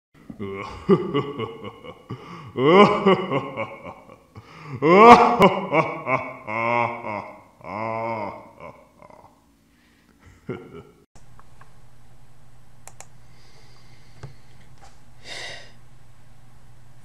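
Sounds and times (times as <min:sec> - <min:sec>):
person laughing: 0:00.3 - 0:09.4, 0:10.2 - 0:11.1.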